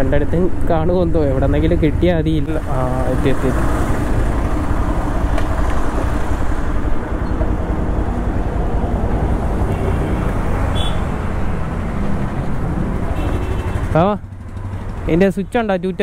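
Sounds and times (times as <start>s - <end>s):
motorcycle engine running: 9.3s - 16.0s.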